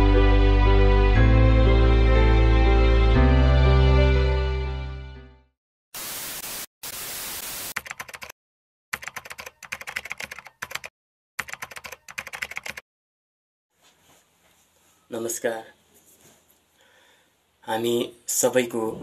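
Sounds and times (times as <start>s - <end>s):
static hiss bursts: 6.0s - 7.8s
keyboard typing clicks: 7.8s - 8.3s, 9.0s - 12.8s.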